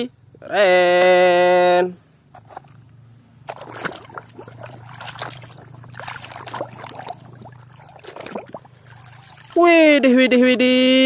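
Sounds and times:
water splashing in a basin: 3.4s - 9.9s.

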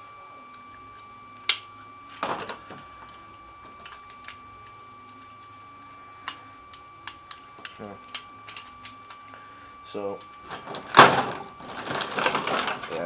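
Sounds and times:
faint high whine: 0.0s - 13.0s
plastic snap: 1.4s - 3.2s.

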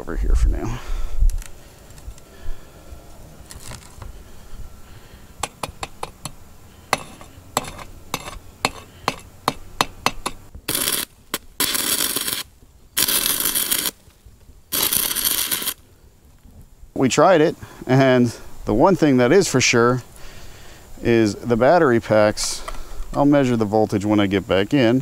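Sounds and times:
welding arc spattering: 10.7s - 14.1s, 14.7s - 15.8s.

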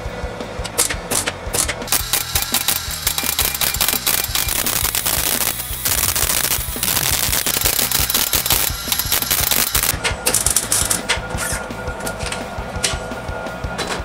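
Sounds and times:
background music: 0.0s - 14.0s
arc welder crackling: 0.6s - 11.2s.

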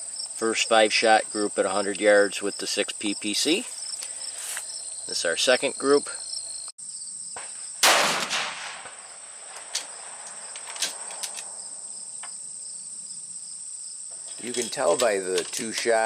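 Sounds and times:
rifle shot: 7.8s - 10.3s.

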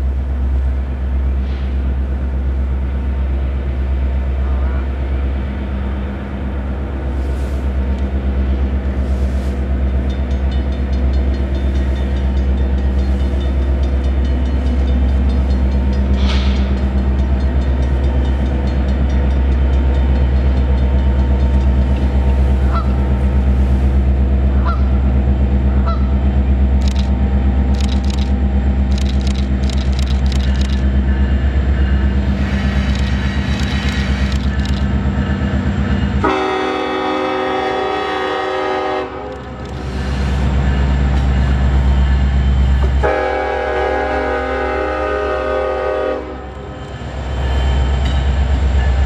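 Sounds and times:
diesel locomotive engine drone: 0.0s - 49.0s
sharp clicks: 26.8s - 30.9s, 32.8s - 34.9s
locomotive horn honks: 36.2s - 39.5s, 42.9s - 46.5s.

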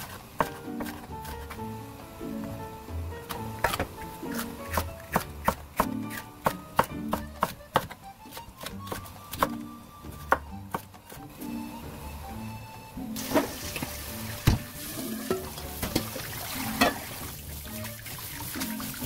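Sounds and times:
knife chopping on wooden board: 0.0s - 1.7s, 3.3s - 9.6s, 10.2s - 11.3s
background music: 0.0s - 19.0s.

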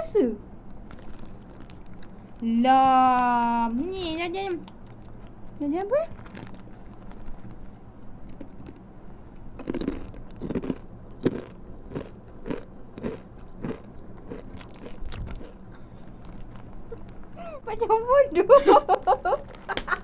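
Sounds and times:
crunchy snack chewing: 0.8s - 2.4s, 4.6s - 17.4s, 19.2s - 20.0s.

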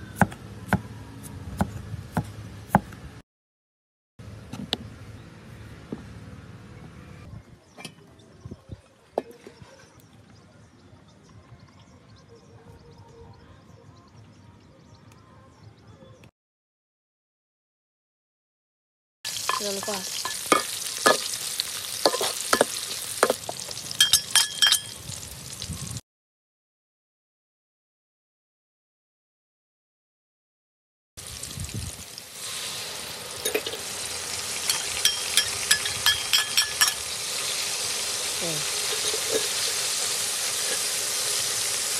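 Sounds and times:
food sizzling in a wok: 19.3s - 26.0s, 31.2s - 41.9s
metal spatula scraping a pan: 22.1s - 23.4s, 38.6s - 41.4s
kitchen utensils knocking: 34.7s - 37.0s.

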